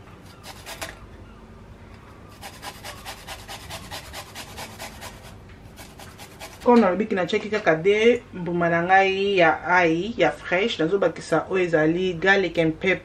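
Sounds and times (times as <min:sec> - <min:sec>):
metal hand grater rasping: 0:02.4 - 0:06.8.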